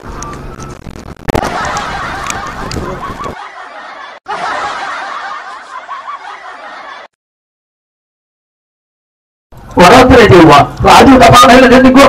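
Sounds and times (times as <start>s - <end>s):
people laughing: 1.4s - 7.2s.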